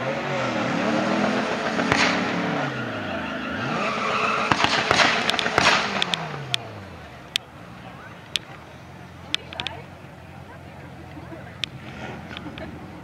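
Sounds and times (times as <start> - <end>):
car engine revving: 0.0 - 13.0
tyres squealing: 1.2 - 6.5
sharp cracks: 4.4 - 6.7.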